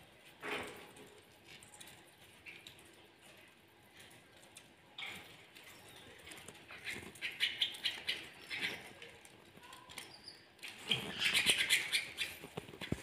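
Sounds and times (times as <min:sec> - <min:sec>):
canaries chirping: 0:05.0 - 0:13.0.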